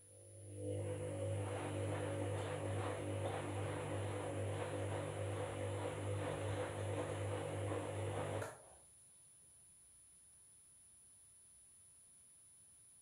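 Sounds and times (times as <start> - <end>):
washing machine motor hum: 0.1 - 8.7
wet laundry swishing in drum: 0.9 - 8.4.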